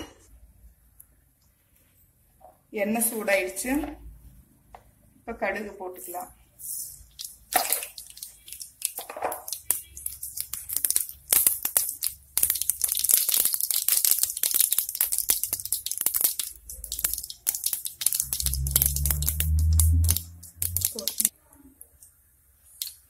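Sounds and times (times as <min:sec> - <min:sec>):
seeds popping in hot oil: 0:06.6 - 0:21.3, 0:22.7 - 0:23.0.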